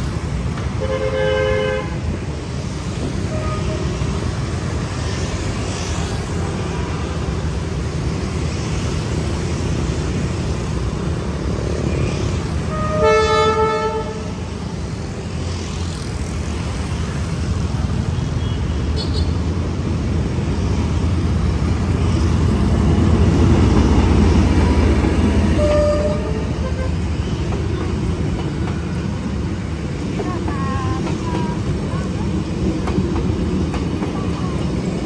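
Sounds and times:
engine and traffic rumble: 0:00.0 - 0:35.0
horn blasts: 0:12.7 - 0:14.3, 0:25.6 - 0:27.0.

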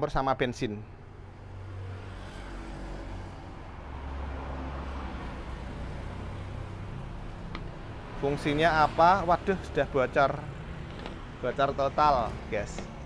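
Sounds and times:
vehicle engine rumbling: 0:04.8 - 0:13.0.

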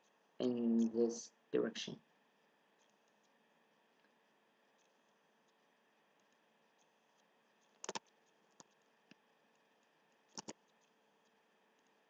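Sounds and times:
computer mouse clicks: 0:04.0 - 0:12.0.

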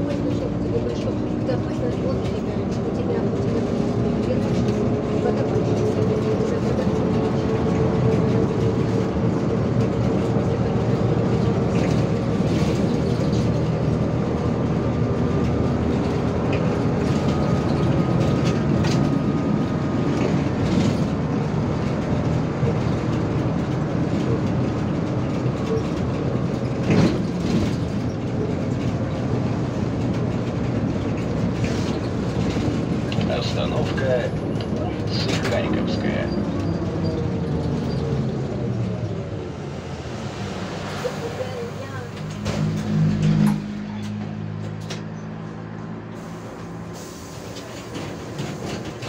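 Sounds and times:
vehicle body rattling: 0:00.0 - 0:45.2
bus rumbling: 0:00.0 - 0:49.0.

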